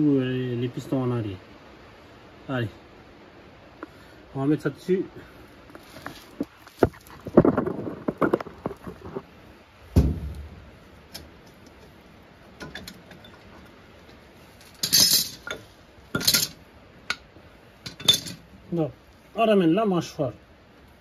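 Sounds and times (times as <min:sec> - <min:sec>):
heavy knock: 0:10.0 - 0:10.6
metal clinking and scraping: 0:12.6 - 0:17.2, 0:17.8 - 0:18.5
sharp metallic clanks: 0:14.7 - 0:17.2.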